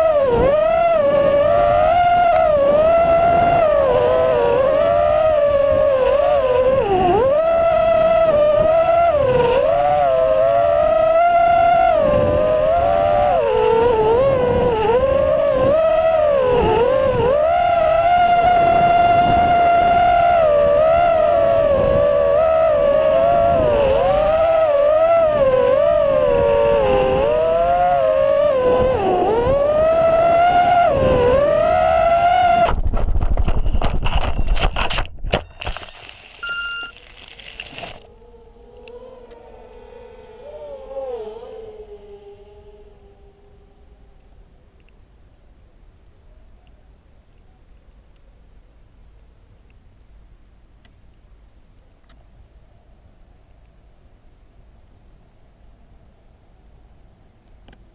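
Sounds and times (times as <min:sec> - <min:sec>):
drone motors whining: 0:00.0 - 0:45.1.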